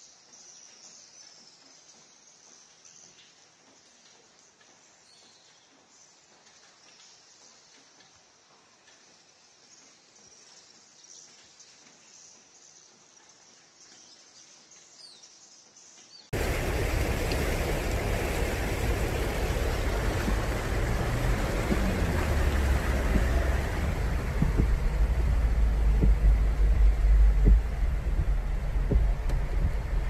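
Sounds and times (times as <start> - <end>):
deep steady rumble: 16.4 - 30.0
floodwater rushing and churning: 16.4 - 30.0.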